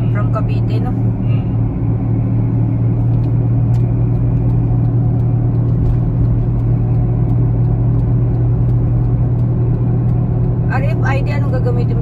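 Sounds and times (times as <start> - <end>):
car interior road drone: 0.0 - 12.0.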